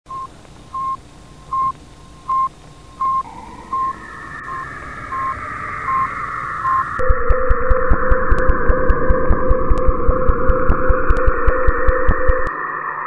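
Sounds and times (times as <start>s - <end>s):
short electronic beeps: 0.1s - 8.6s
noisy hiss: 0.1s - 13.0s.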